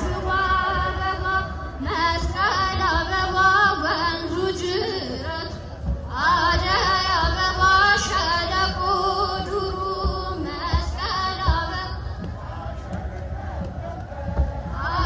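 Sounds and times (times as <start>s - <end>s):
choir singing a hymn: 0.0s - 4.4s.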